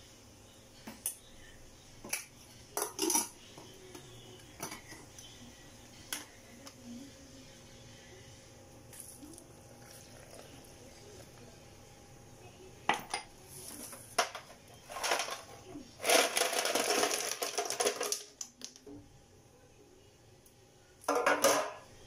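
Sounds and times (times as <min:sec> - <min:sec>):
ice cubes clattering into blender jar: 0:14.9 - 0:18.4.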